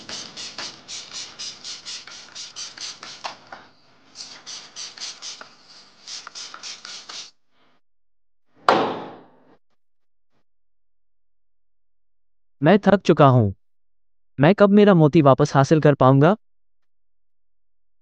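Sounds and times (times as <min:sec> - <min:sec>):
spray bottle squirting: 0:00.0 - 0:07.3
loud thump: 0:08.6 - 0:09.4.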